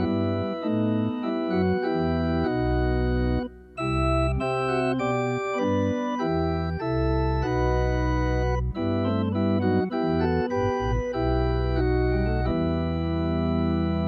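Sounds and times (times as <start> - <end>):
organ playing slow chords: 0.0 - 14.0.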